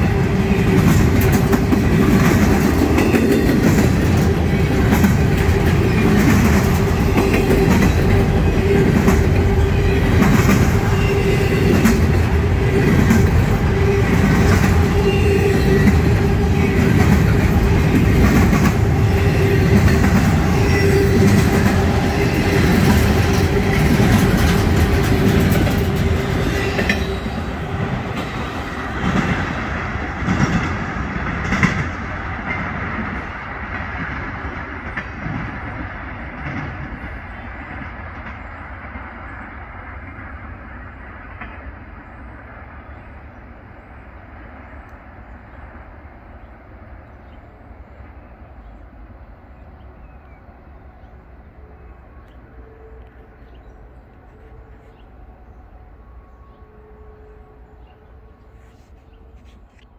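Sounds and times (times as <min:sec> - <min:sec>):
train wheels clattering on rails: 0:00.0 - 0:40.5.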